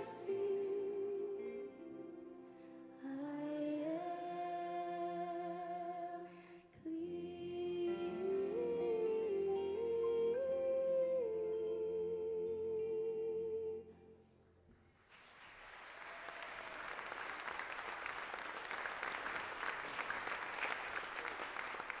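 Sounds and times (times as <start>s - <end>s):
woman singing solo: 0.0s - 14.0s
audience applauding: 15.0s - 22.0s.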